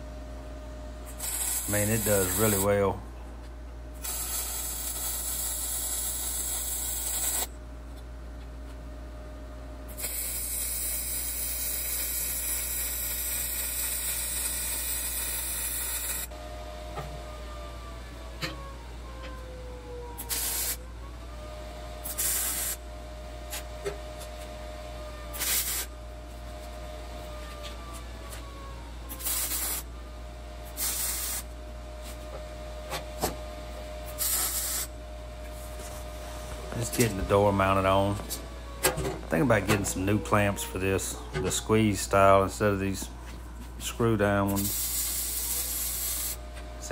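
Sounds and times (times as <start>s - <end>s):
welding arc hissing: 1.1s - 2.6s, 4.0s - 7.5s, 9.9s - 16.3s, 20.2s - 20.8s, 22.0s - 22.8s, 25.4s - 25.9s, 29.2s - 29.9s, 30.7s - 31.5s, 34.1s - 34.9s, 44.5s - 46.4s.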